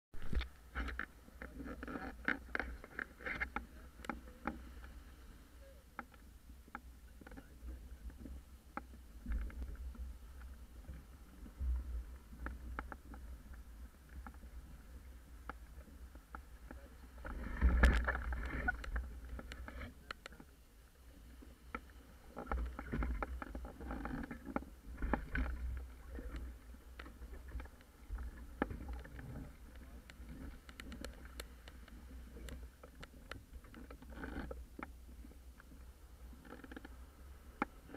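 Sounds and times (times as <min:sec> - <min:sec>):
rigging clicks and taps: 0:00.2 - 0:04.9, 0:06.0 - 0:14.5, 0:15.4 - 0:20.5, 0:21.7 - 0:35.8
wind rumble on microphone: 0:07.1 - 0:20.6, 0:21.2 - 0:37.9.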